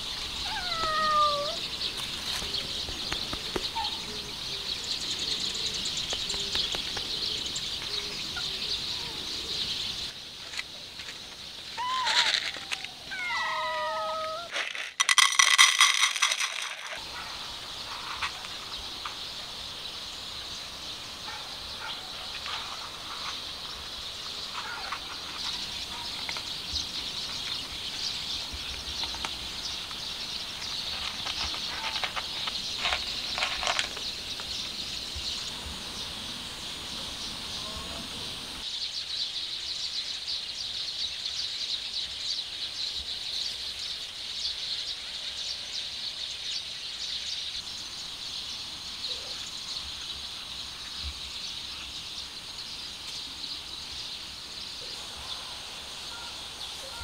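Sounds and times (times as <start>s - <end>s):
faint chirps: 53.1s - 57.0s.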